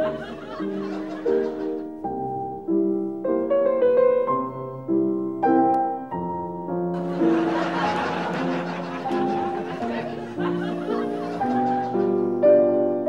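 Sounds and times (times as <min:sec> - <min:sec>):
keyboard chords: 0:00.0 - 0:13.0.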